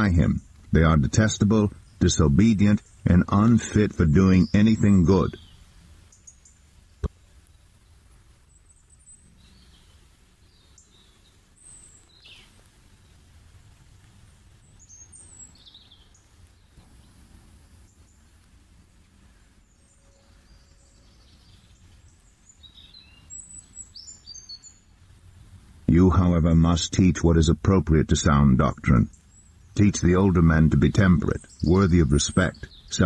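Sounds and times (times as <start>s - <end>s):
small birds chirping: 0.0s - 33.0s
low steady rumble: 24.6s - 33.0s.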